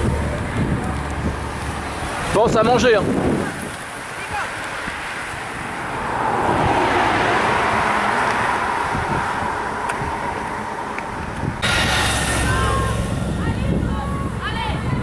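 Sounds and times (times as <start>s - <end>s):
bicycles whooshing past: 0.0s - 15.0s
wind buffeting microphone: 0.0s - 15.0s.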